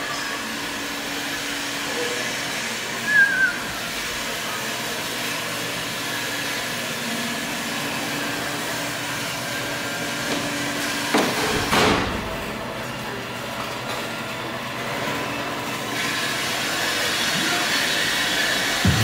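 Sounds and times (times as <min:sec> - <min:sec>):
workshop background hum: 0:00.0 - 0:19.0
loud bursts of noise: 0:18.7 - 0:19.0.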